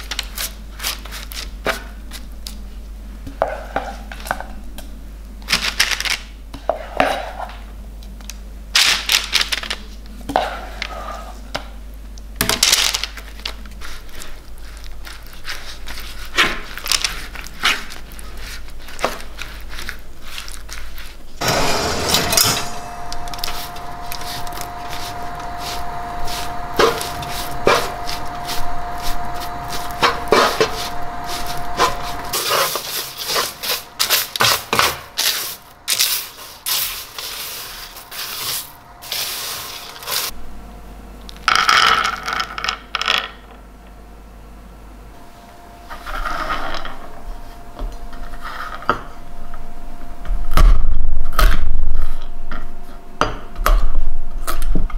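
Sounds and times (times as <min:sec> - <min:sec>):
steady hum: 0:06.3 - 0:54.9
spatula scraping baking tray: 0:13.8 - 0:40.3.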